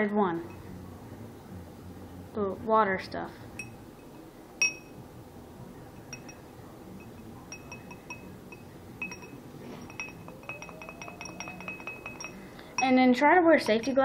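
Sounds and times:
glass clinking: 3.6s - 5.0s, 5.9s - 14.0s.

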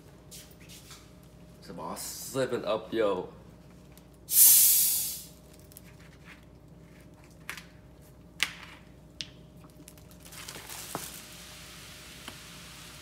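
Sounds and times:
plastic rustling: 9.7s - 11.4s.

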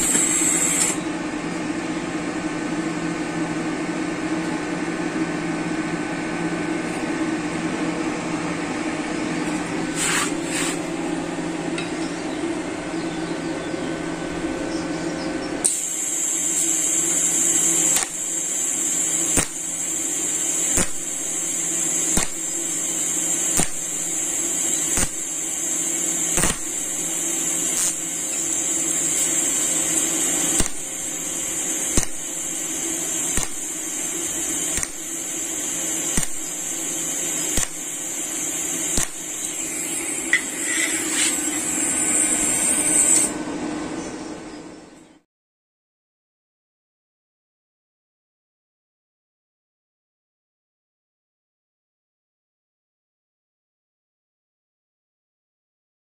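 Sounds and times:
welding arc hiss and buzz: 0.0s - 11.9s, 15.6s - 43.4s
sharp click: 34.8s - 35.0s, 36.2s - 36.5s, 37.6s - 37.8s, 39.0s - 39.6s.

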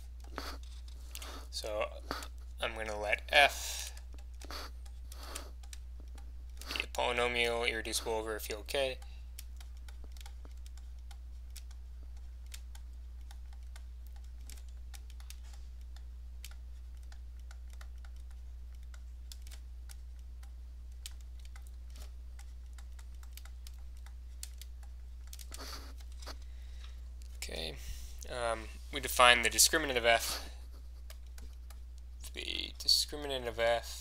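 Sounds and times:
steady low hum: 0.0s - 34.0s
stylus clicking on tablet screen: 8.7s - 27.3s, 30.3s - 32.1s.

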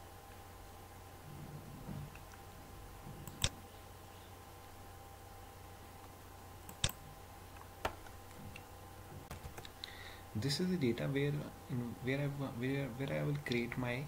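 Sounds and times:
faint electrical hum: 0.0s - 14.0s
computer mouse clicks: 3.2s - 3.6s, 6.7s - 7.0s.

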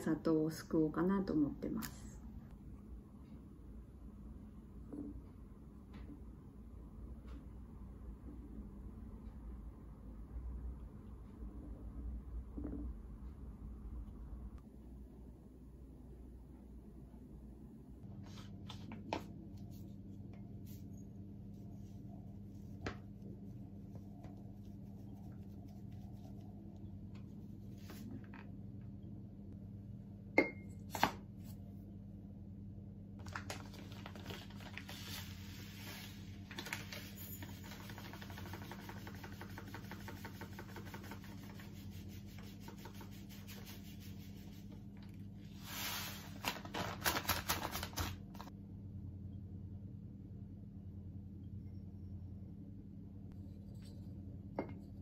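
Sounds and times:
steady low hum: 0.0s - 46.5s, 48.2s - 55.0s
plastic bag crackling: 33.2s - 37.2s.

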